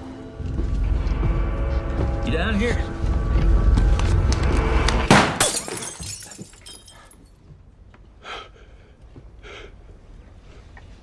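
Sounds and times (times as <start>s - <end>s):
loud rushing roar: 0.6s - 5.1s.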